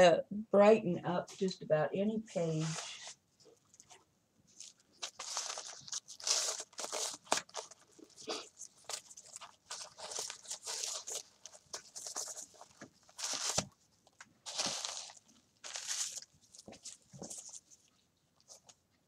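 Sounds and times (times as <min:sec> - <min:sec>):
tissue paper crinkling: 0:02.5 - 0:18.7.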